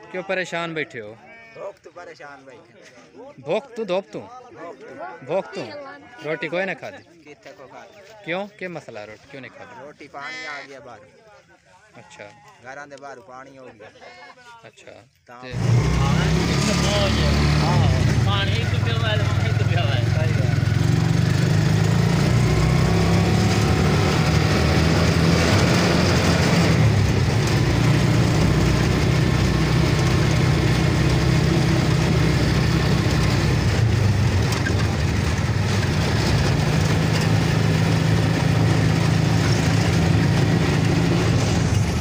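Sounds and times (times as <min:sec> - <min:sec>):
road and wind noise: 0:15.5 - 0:42.0
small vehicle engine running: 0:15.5 - 0:42.0.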